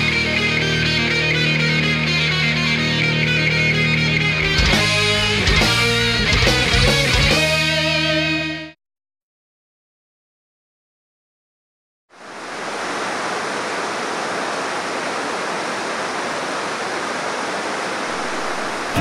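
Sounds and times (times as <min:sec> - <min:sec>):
waterfall rushing into river: 0:12.1 - 0:19.0.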